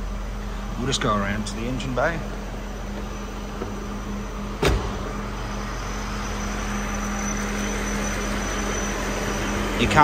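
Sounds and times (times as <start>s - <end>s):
car engine idling: 0.0s - 10.0s
car door shutting: 2.8s - 5.3s.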